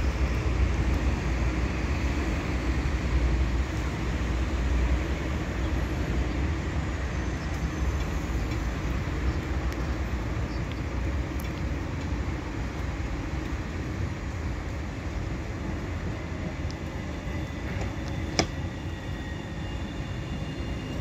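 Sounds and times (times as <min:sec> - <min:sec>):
low outdoor rumble: 0:00.0 - 0:21.0
tram approaching: 0:00.0 - 0:21.0.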